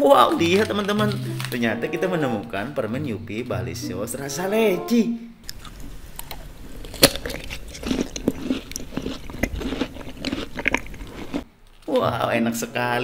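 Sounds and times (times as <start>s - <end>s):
person chewing fruit: 5.4s - 11.9s.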